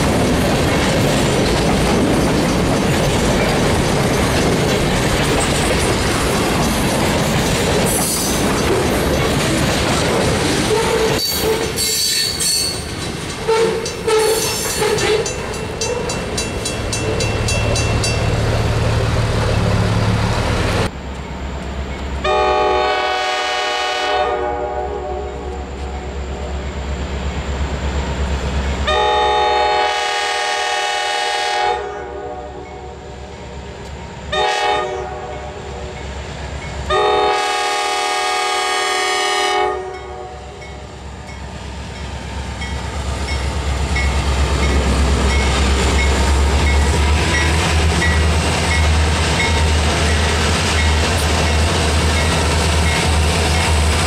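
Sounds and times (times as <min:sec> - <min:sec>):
locomotive air horn blasts: 0:22.2 - 0:25.8, 0:28.9 - 0:32.6, 0:34.3 - 0:35.9, 0:36.9 - 0:40.6.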